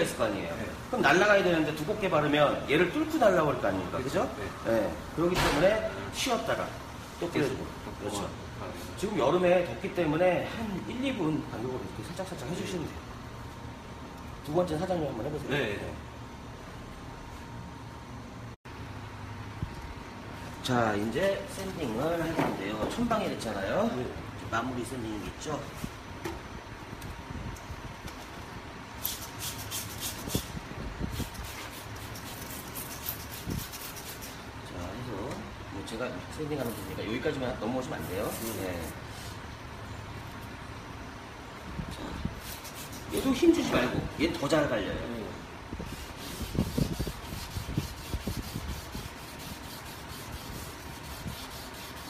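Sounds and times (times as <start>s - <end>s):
sanding pad scratching wet paint: 31.2s - 34.4s, 42.4s - 43.4s, 45.9s - 52.0s.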